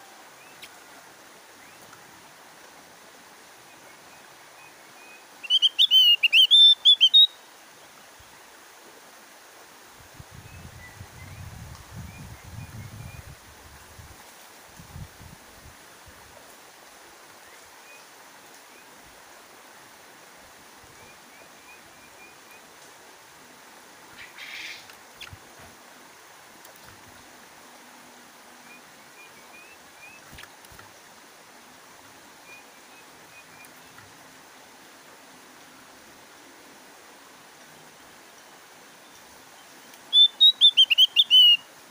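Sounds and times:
background hiss: 0.0s - 41.9s
faint high bird chirps: 3.6s - 7.4s, 39.0s - 41.7s.

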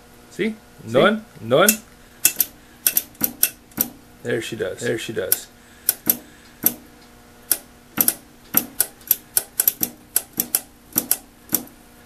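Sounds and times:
faint steady hum: 0.0s - 12.0s
switch clicking: 1.7s - 4.0s, 5.3s - 11.8s.

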